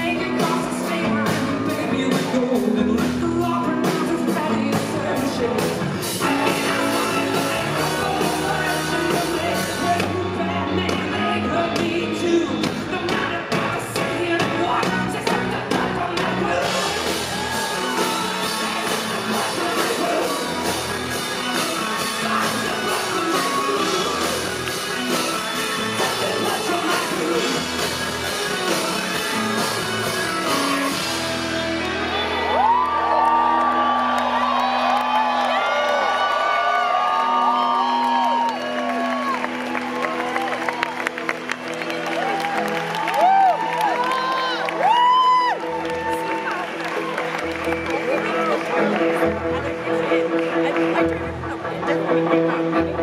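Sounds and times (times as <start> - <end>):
man singing and shouting: 0.0 - 31.0
drums: 0.0 - 53.0
electric guitar: 0.0 - 53.0.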